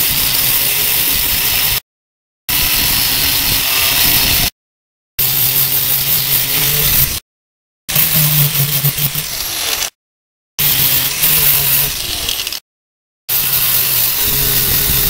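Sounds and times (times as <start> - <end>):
wire brush scrubbing steel: 5.2 - 7.2, 7.9 - 9.9, 10.6 - 12.6, 13.3 - 15.0
angle grinder motor hum: 5.3 - 7.2, 7.9 - 9.9, 10.6 - 12.6, 13.3 - 15.0.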